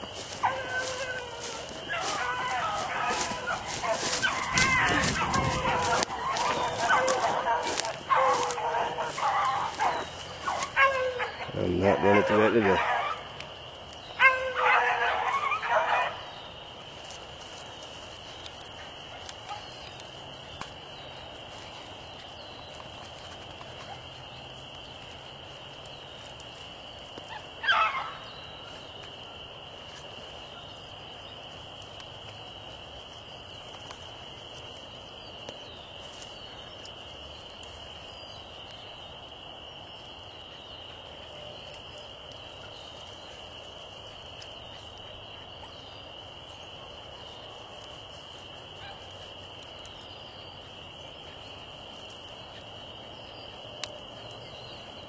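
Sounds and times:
dog baying: 0.2s - 13.4s, 14.2s - 16.3s
dog bawling: 0.4s - 13.2s.

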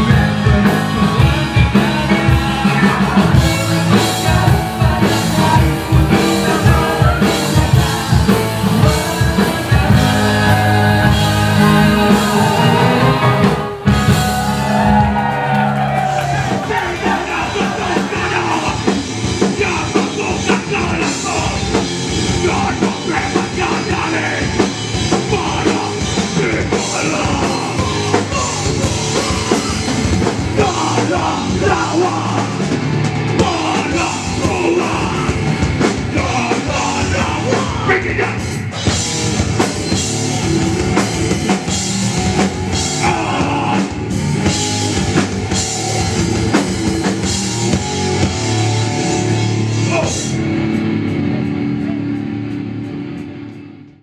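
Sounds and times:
person singing: 0.0s - 32.8s, 33.4s - 38.6s, 42.7s - 44.2s
bass guitar: 0.0s - 54.0s
drum kit: 0.0s - 54.0s
electric guitar: 0.0s - 54.0s.

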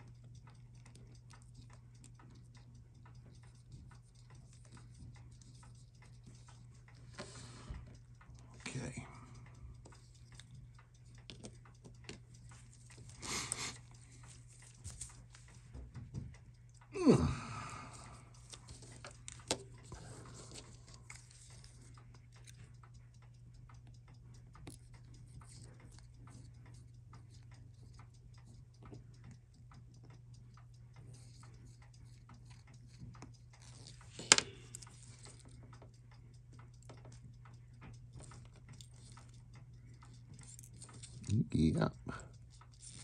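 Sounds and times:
clock ticking: 0.0s - 43.0s
small metal parts clicking: 42.1s - 43.0s.

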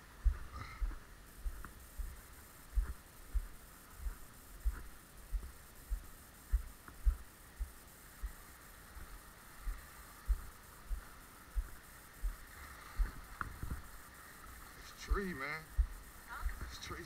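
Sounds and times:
footsteps on dirt path: 0.0s - 13.9s, 15.1s - 17.0s
faint high hum: 0.0s - 17.0s.

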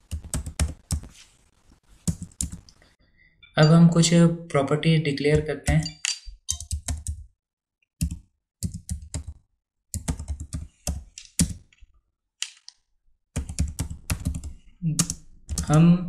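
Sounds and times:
computer keyboard typing: 0.0s - 1.1s, 2.0s - 2.8s, 5.3s - 7.3s, 8.0s - 9.4s, 10.0s - 11.7s, 13.4s - 15.8s.

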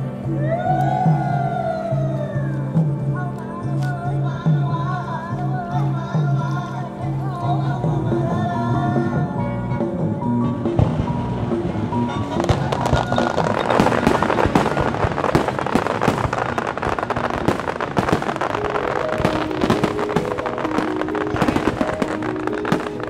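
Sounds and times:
background music with held notes: 0.0s - 23.0s
fireworks crackling and popping: 10.6s - 23.0s.

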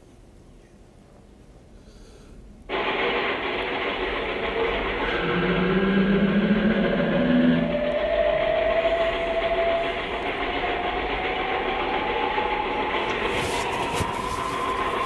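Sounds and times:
machine-like rumble and hiss: 0.0s - 15.0s
low hum: 2.4s - 15.0s
rising whistle-like tone: 5.2s - 15.0s.

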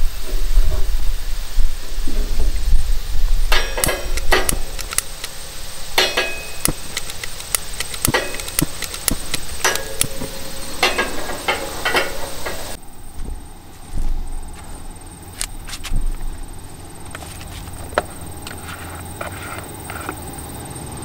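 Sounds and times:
low rumble: 0.0s - 20.5s
lighter igniter clicking: 3.6s - 5.4s, 6.1s - 10.3s.

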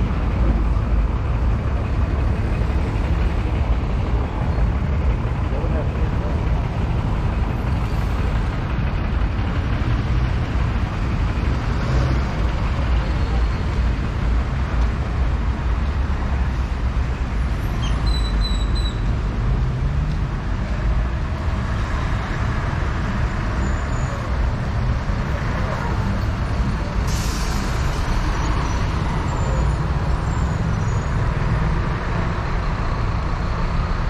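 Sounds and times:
low engine rumble: 0.0s - 17.9s
road traffic: 0.0s - 34.0s.

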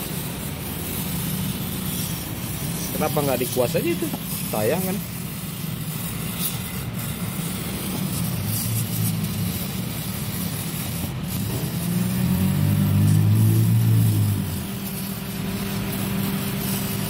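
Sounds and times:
aerosol spray hiss: 0.0s - 17.0s
vehicle engine running: 0.0s - 17.0s.

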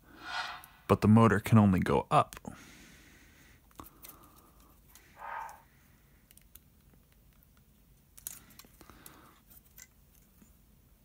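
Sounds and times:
clicks and rustling of plastic: 6.3s - 10.6s.

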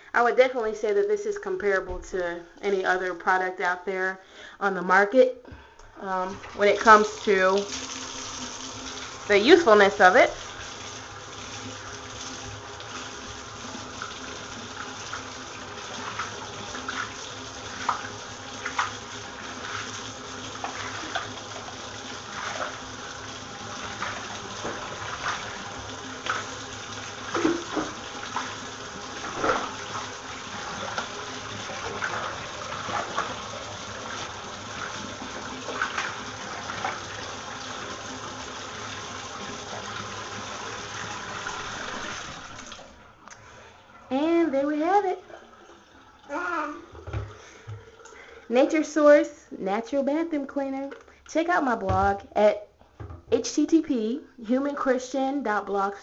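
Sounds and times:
water running into bathtub: 0.0s - 56.0s
water splashes: 6.3s - 43.6s.

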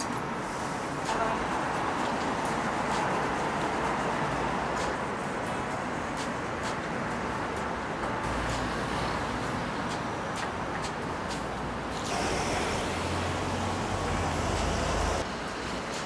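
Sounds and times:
road traffic: 0.0s - 16.0s
vehicle passing close by: 12.1s - 15.2s.

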